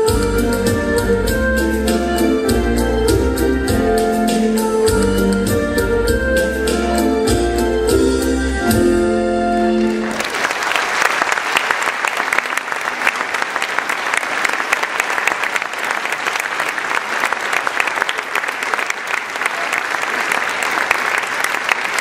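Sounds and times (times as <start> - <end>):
folk dance music: 0.0 - 10.6
audience applauding: 9.8 - 22.0.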